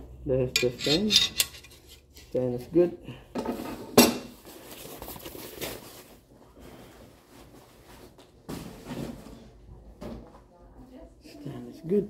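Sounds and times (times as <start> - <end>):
foam packing sheet rustling: 4.4 - 6.2.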